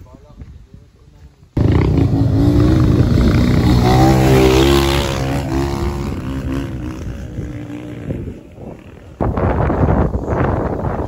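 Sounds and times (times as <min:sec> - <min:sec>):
dirt bike engine revving: 0:01.6 - 0:09.5.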